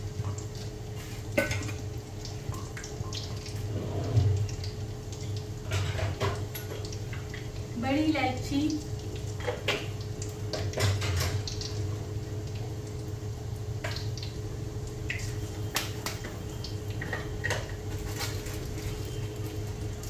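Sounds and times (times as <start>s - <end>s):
spices sizzling in hot oil: 0.0s - 20.0s.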